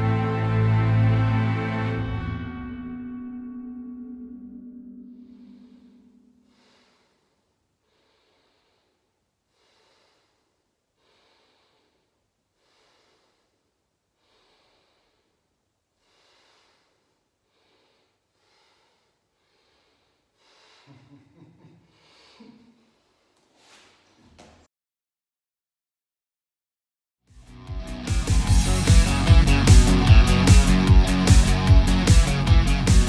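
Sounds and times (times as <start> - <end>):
slow soft breathing: 5.0 - 21.2, 21.8 - 24.1.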